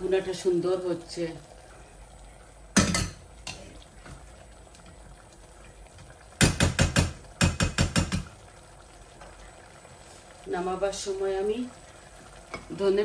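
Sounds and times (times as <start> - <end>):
wooden spoon knocking on metal pot: 2.8 - 3.6, 6.4 - 8.3.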